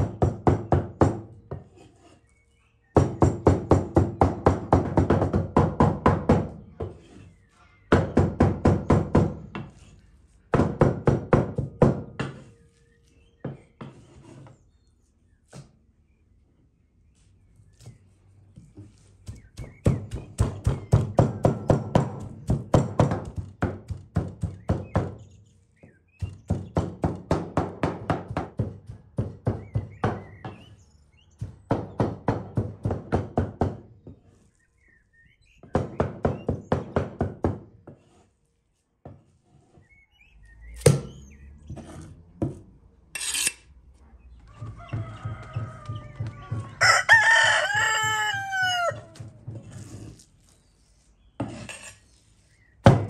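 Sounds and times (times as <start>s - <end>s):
cleaver chopping on wooden board: 19.2s - 25.2s, 40.8s - 41.2s
rooster crowing: 44.4s - 49.2s.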